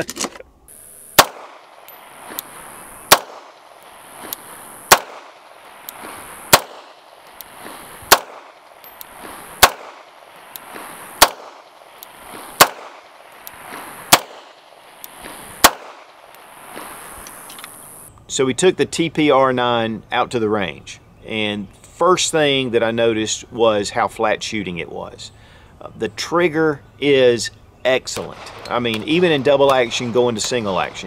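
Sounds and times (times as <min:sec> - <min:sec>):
pistol shots with echo: 0:01.1 - 0:01.8, 0:03.1 - 0:03.7, 0:04.9 - 0:05.5, 0:06.5 - 0:07.2, 0:08.1 - 0:08.8, 0:09.6 - 0:10.2, 0:11.2 - 0:11.8, 0:12.6 - 0:13.2, 0:14.1 - 0:14.7, 0:15.6 - 0:16.2.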